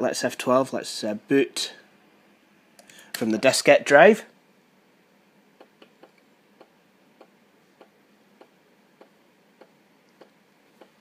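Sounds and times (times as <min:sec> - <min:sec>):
floppy disk drive ticking: 0:05.6 - 0:11.0.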